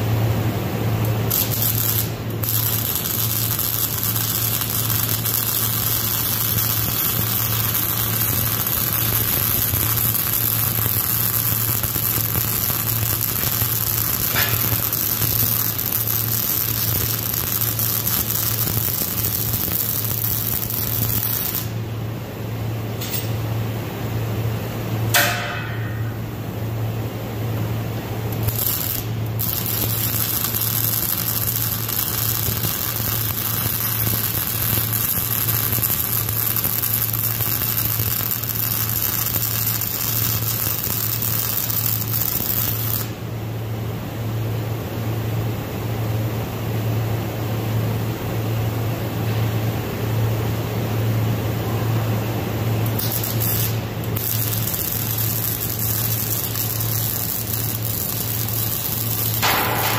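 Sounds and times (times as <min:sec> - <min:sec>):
steady low hum: 0:00.0 - 0:59.9
welding arc hissing: 0:00.9 - 0:21.9, 0:27.8 - 0:43.2, 0:52.6 - 0:59.9
sharp metallic clank: 0:14.3 - 0:14.8, 0:25.1 - 0:26.2, 0:59.4 - 0:59.9.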